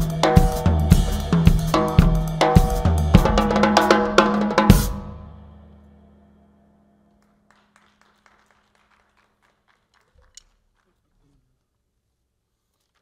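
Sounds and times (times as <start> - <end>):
drum kit solo: 0.0 - 7.1
faint clapping: 7.1 - 11.2.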